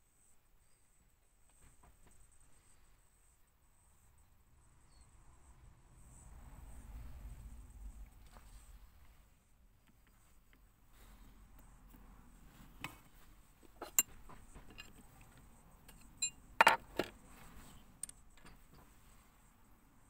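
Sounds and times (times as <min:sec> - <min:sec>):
metal tools clinking: 0:13.8 - 0:15.2, 0:15.9 - 0:17.1.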